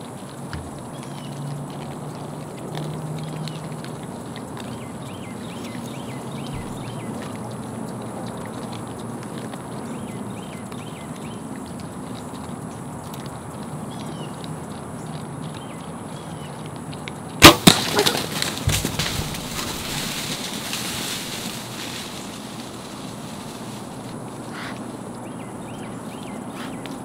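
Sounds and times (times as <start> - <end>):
hogs scrambling through dry leaves: 0.0 - 27.0
bow firing crack: 17.4 - 20.5.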